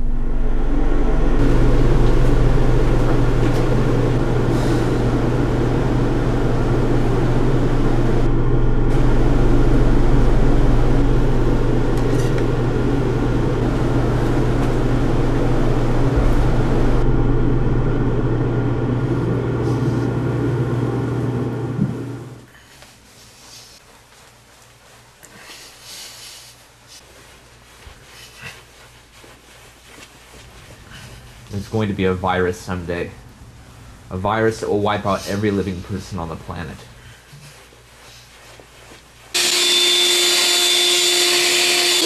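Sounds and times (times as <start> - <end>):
dense rushing noise: 0.0 - 22.3
low droning hum: 0.0 - 22.6.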